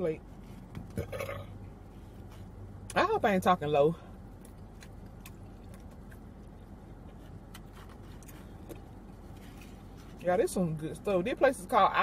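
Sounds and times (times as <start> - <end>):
car cabin hum: 0.0 - 12.0
quiet chewing: 4.3 - 10.2.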